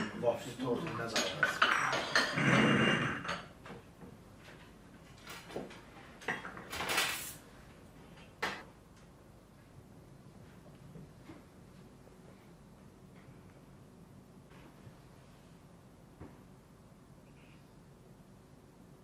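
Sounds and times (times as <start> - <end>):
tea cups and saucers clinking: 0.9 - 3.5.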